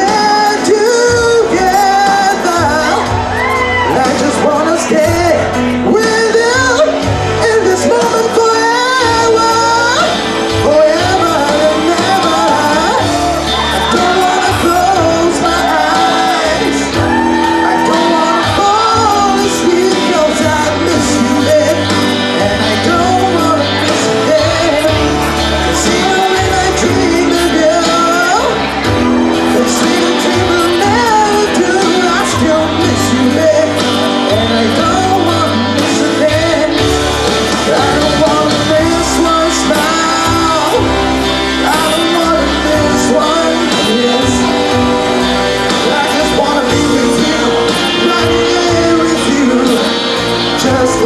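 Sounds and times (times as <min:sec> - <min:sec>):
man singing into a microphone: 0:00.0 - 0:51.0
pop backing track with bass: 0:00.0 - 0:51.0.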